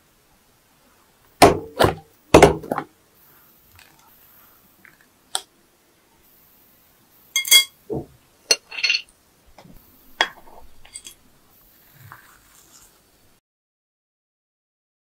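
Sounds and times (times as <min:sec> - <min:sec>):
dishes and utensils clinking: 0:07.4 - 0:09.1, 0:10.2 - 0:11.2.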